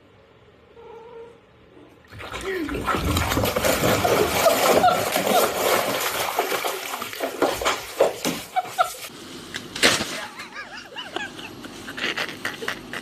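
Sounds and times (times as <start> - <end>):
cat splashing in bathtub water: 2.0 - 9.1.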